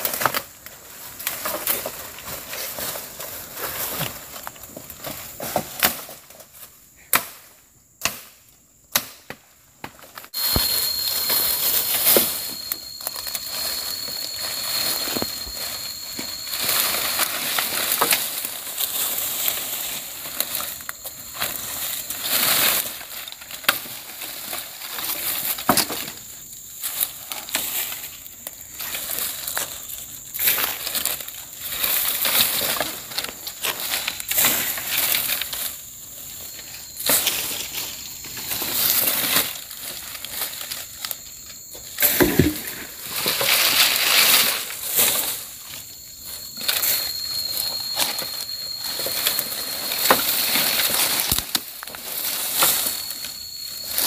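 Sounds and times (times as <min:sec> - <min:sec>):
branches rustling and dragged: 0:00.0 - 0:06.8, 0:10.3 - 0:54.0.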